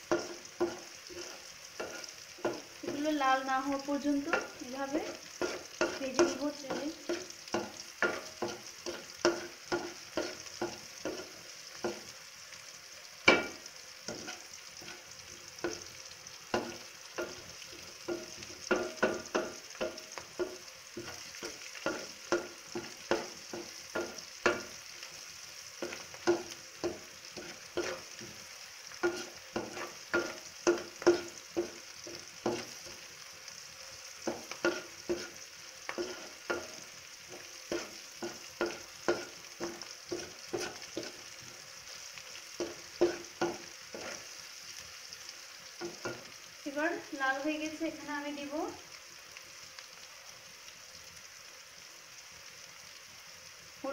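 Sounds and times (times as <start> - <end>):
onions sizzling in oil: 0.0 - 53.9
wooden spatula scraping a pan: 0.1 - 12.1, 13.3 - 15.9, 16.6 - 33.1, 34.2 - 44.4.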